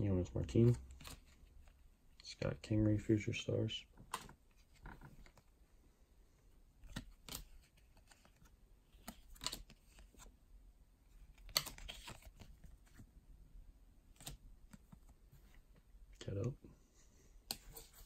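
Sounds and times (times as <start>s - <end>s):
cards flicking and sliding: 6.8s - 10.3s, 11.3s - 13.0s.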